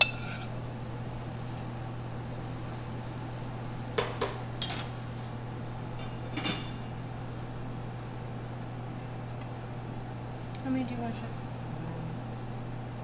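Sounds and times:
steady low hum: 0.0s - 13.0s
metal tools clinking on ceramic bowls: 6.0s - 6.8s.

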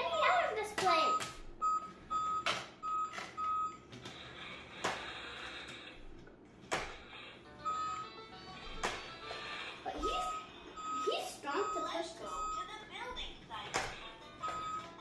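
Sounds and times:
electronic toy beeping: 0.1s - 3.8s, 7.5s - 12.7s, 13.9s - 15.0s.

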